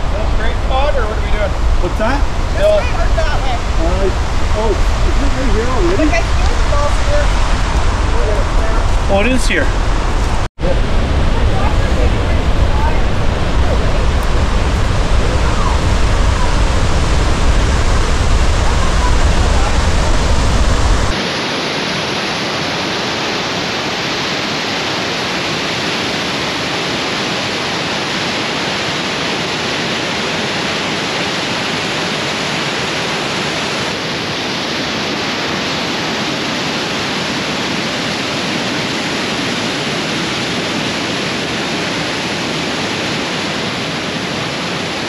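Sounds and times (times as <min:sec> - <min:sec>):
low rumble: 0:00.0 - 0:21.2
waterfall rushing: 0:00.0 - 0:45.0.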